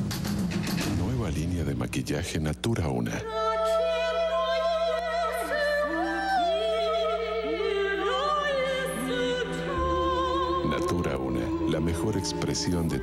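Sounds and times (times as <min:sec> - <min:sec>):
operatic singing: 0:03.2 - 0:13.0.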